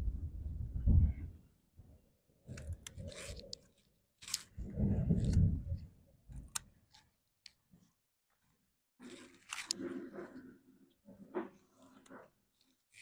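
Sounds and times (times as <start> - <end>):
leaves rustling in hand: 3.0 - 5.6.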